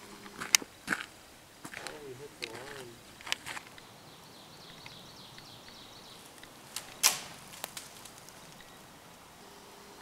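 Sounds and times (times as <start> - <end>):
faint high chirping: 3.7 - 6.5, 8.4 - 10.0.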